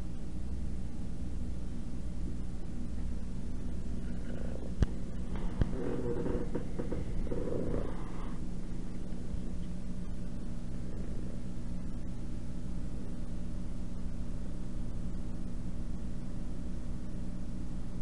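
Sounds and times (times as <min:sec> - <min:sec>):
cat purring: 0:04.0 - 0:11.4.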